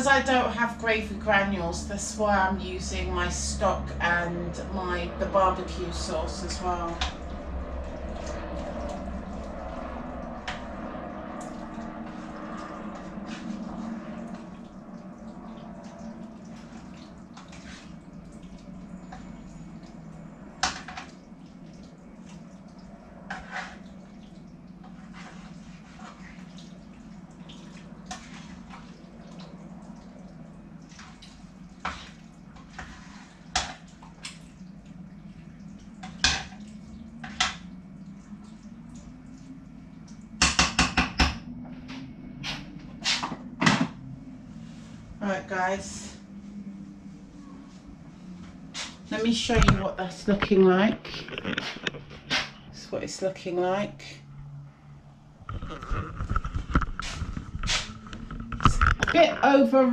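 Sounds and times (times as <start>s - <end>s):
low hum: 0.0s - 59.9s
liquid sloshing: 1.6s - 40.4s, 46.3s - 52.8s, 55.1s - 59.6s
spoon stirring a pot: 23.3s - 24.0s, 24.8s - 26.7s, 30.8s - 34.3s.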